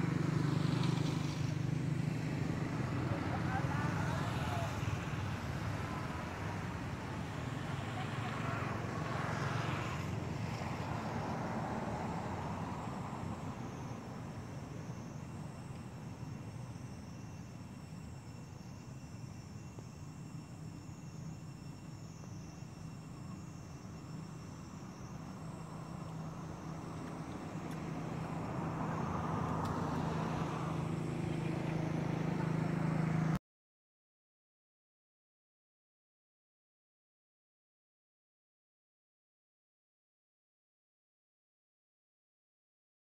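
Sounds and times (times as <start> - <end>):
low outdoor rumble with hiss: 0.0 - 33.4
vehicle engine running: 0.0 - 33.4.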